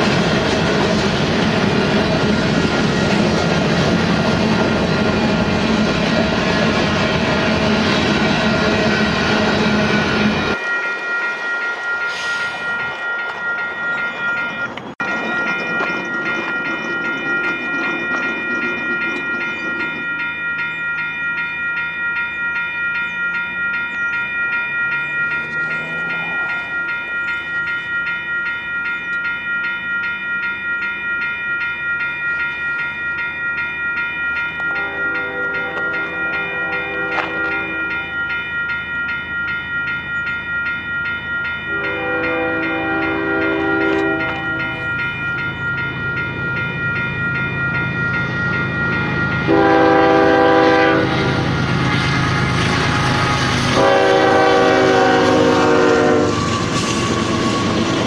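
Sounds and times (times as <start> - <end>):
train wheels clattering on rails: 0.0 - 10.7, 11.7 - 21.6, 33.7 - 39.0, 43.1 - 58.0
distant train hum: 0.0 - 58.0
railroad crossing bell ringing: 0.0 - 58.0.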